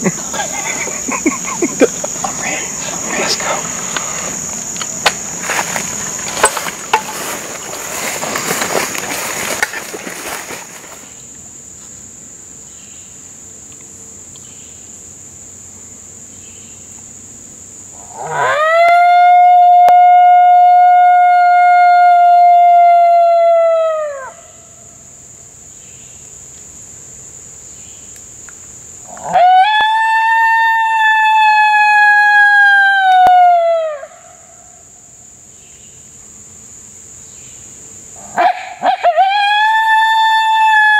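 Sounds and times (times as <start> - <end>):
high insect buzz: 0.0 - 40.9
coyote howl from hand call: 18.0 - 24.6, 29.1 - 34.6, 38.2 - 40.9.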